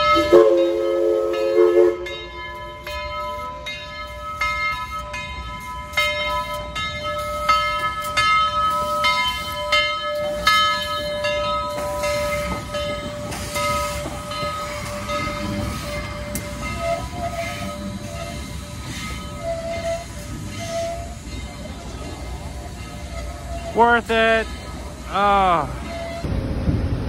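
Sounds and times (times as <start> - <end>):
locomotive bell ringing: 0.0 - 26.3
steam locomotive hiss and rumble: 0.0 - 27.0.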